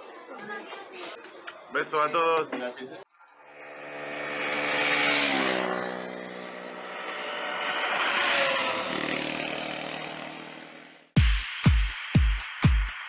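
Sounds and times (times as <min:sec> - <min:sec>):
motorcycle engines passing: 0:03.0 - 0:11.2.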